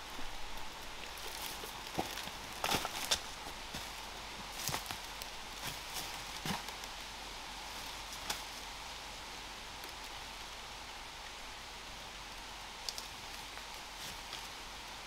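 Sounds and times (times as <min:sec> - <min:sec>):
footsteps in dry leaves and stones: 0:00.0 - 0:07.0
background hiss: 0:00.0 - 0:15.0.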